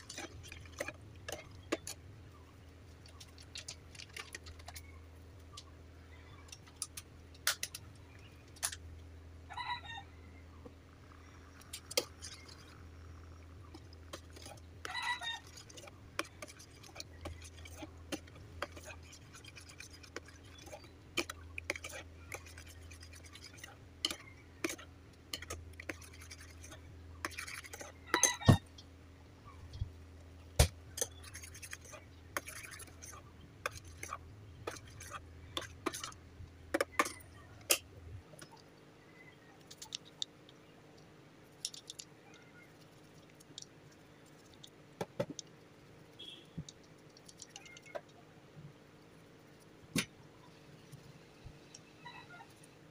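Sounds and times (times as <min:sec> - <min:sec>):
spoon scraping metal pot: 0:00.0 - 0:02.0, 0:11.5 - 0:28.6, 0:30.9 - 0:37.9
low steady hum: 0:00.0 - 0:52.9.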